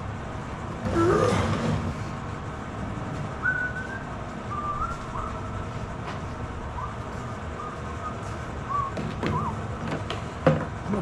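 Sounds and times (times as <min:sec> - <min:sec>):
low background noise: 0:00.0 - 0:11.0
faint whistled notes: 0:03.4 - 0:05.8, 0:06.6 - 0:09.8.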